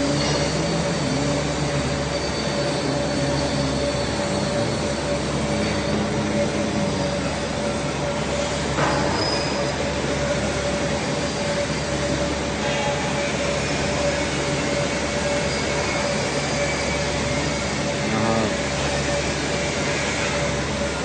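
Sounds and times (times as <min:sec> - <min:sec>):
constant high hum: 0:00.0 - 0:21.0
workshop machinery noise: 0:00.0 - 0:21.0.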